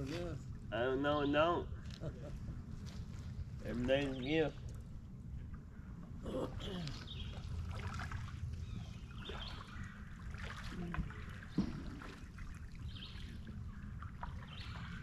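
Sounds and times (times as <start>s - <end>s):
water trickling off paddle: 7.0s - 15.0s
kayak paddle strokes: 9.2s - 15.0s.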